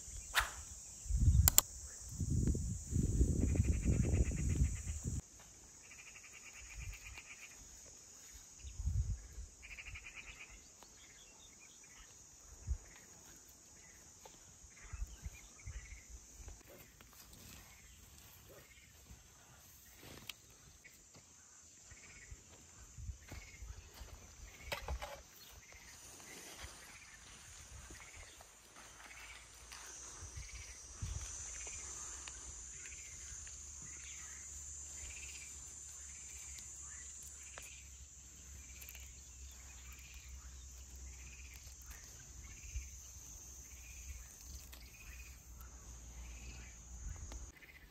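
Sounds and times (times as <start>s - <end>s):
insect pulsed trills: 0.0s - 47.9s
insects chirring: 0.0s - 47.9s.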